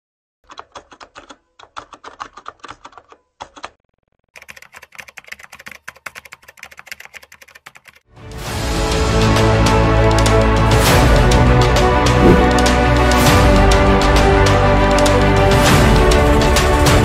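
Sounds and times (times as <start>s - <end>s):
music: 8.1s - 17.0s.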